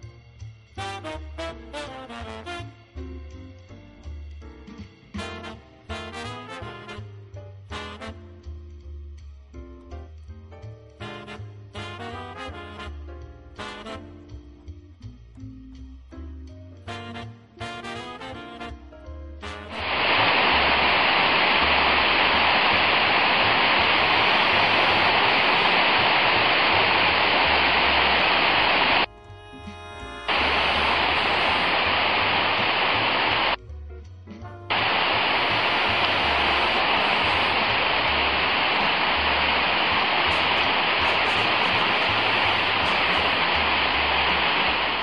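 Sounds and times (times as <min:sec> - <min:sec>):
faint background music: 0:00.0 - 0:45.0
waterfall rushing: 0:19.7 - 0:29.1, 0:30.3 - 0:33.6, 0:34.7 - 0:45.0.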